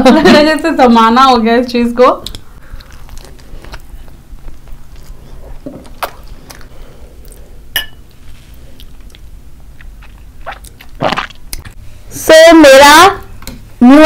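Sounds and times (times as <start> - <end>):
eating mouth sounds: 8.8 - 11.7.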